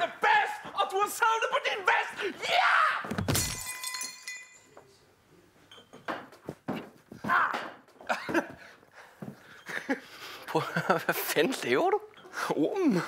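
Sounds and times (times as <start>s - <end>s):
tableware clattering: 3.3s - 4.9s, 5.7s - 6.5s.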